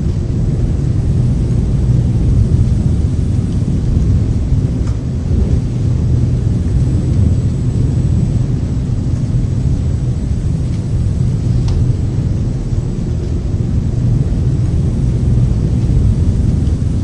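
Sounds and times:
deep rumbling noise: 0.0s - 17.0s.

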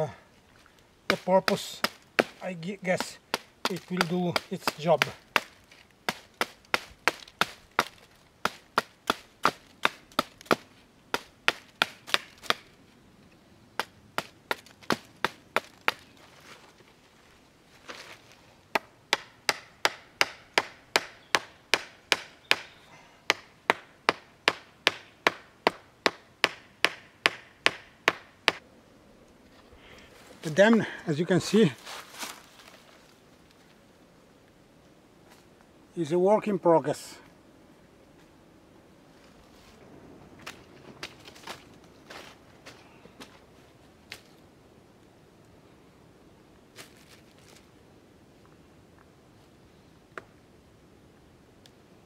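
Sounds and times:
hatchet knocking on wooden stake: 3.0s - 5.5s, 18.7s - 28.6s.

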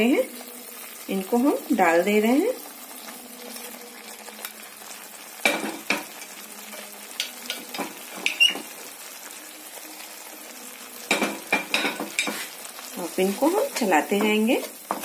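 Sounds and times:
paste sizzling in hot oil: 0.0s - 15.0s
utensils knocking and scraping pan: 7.2s - 8.7s, 11.1s - 12.6s, 13.4s - 15.0s.

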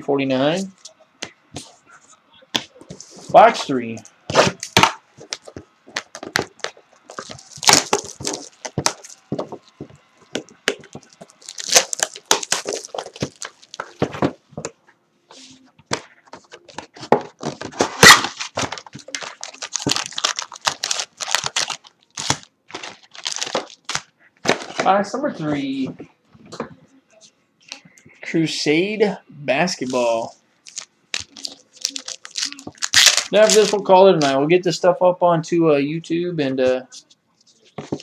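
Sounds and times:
plastic wrapping crinkling and tearing: 4.4s - 9.8s, 10.6s - 14.0s, 17.8s - 24.8s, 30.6s - 33.9s.

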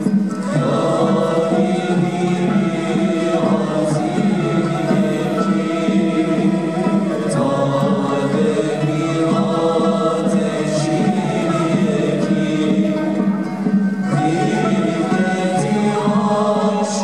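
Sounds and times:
chanting voices on held notes: 0.0s - 17.0s
steady pitched accompaniment: 0.0s - 17.0s.

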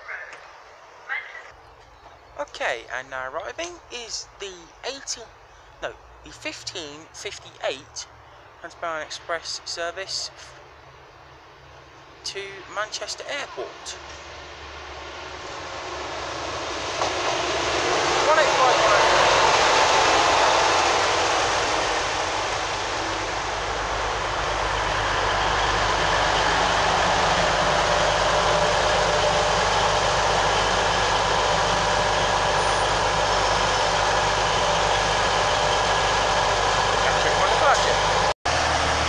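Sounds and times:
diesel engines idling: 1.6s - 39.0s
train coming to a stop: 13.8s - 39.0s.

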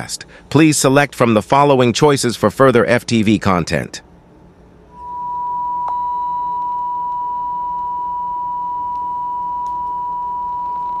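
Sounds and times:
television test tone beep: 4.9s - 11.0s.

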